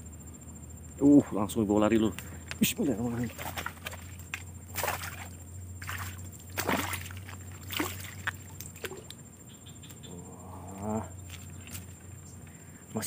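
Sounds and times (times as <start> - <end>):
fish splashing at water surface: 3.1 - 9.1.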